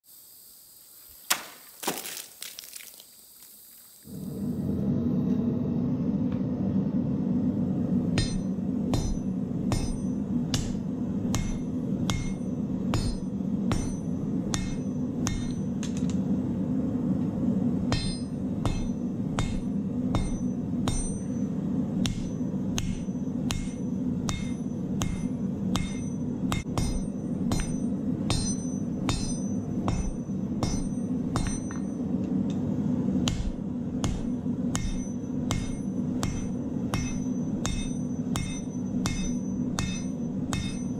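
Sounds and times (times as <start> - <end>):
gas forge roaring: 4.0 - 40.9
hammer ringing on anvil: 8.2 - 15.8, 17.9 - 32.1, 33.3 - 40.9.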